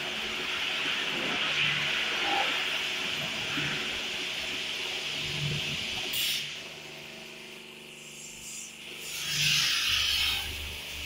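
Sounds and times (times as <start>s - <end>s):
water jets hissing against car: 0.0s - 7.2s
faint motor hum: 0.0s - 11.0s.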